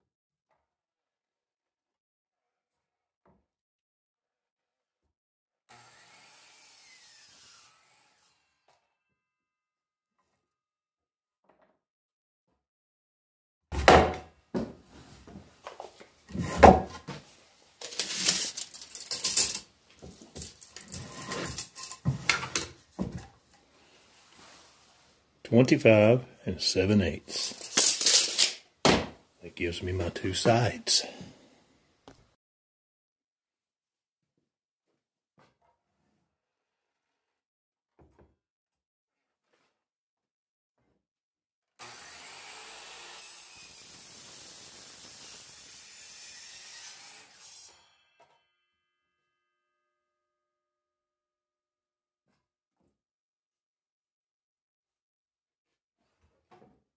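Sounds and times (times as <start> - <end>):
tape measure clattering on wood: 17.8 - 23.3, 27.3 - 28.6
miter saw cutting wood: 41.8 - 47.9.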